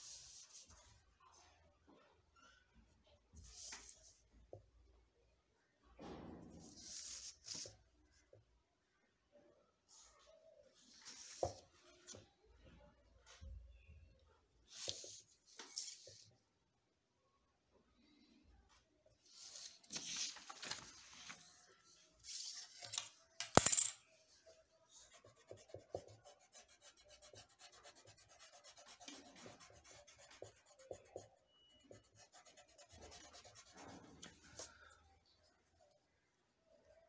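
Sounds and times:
rubbing strokes on paper: 0.0s - 0.9s, 6.7s - 7.7s, 24.9s - 34.0s
paper rustling: 19.3s - 23.9s.

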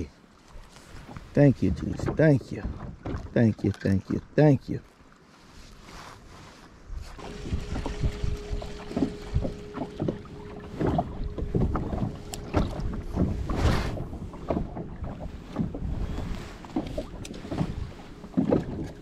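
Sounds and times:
wind buffeting microphone: 6.8s - 19.0s
electric motor humming: 7.2s - 14.2s.

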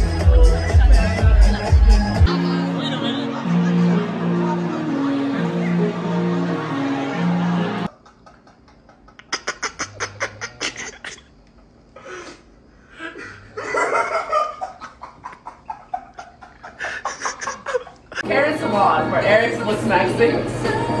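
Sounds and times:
stifled giggling: 0.3s - 5.5s, 7.9s - 11.4s, 12.9s - 18.2s
laughter: 0.8s - 5.2s, 7.9s - 11.3s, 13.0s - 18.2s.

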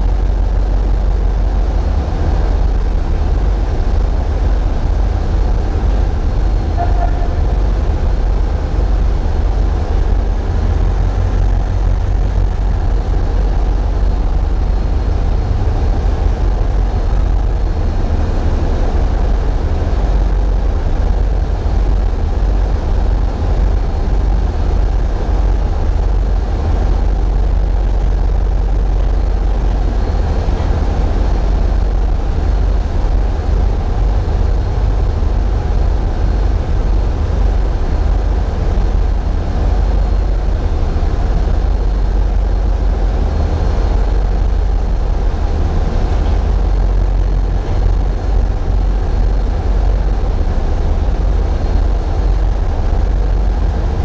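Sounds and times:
diesel engines rumbling: 0.0s - 54.0s.

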